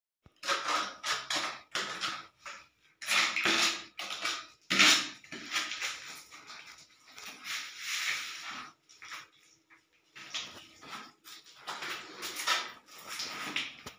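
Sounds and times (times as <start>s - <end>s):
trowel scraping mortar on tile: 0.4s - 8.8s, 11.3s - 13.9s.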